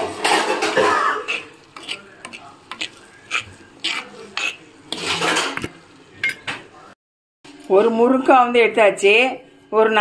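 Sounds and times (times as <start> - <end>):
shallots sizzling in oil: 0.0 - 6.3
spoon scraping clay pot: 0.1 - 6.4.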